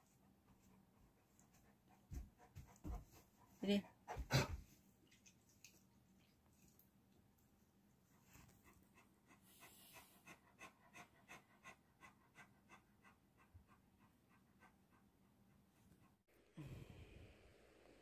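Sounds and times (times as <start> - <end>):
cat licking while grooming: 5.0 - 7.5.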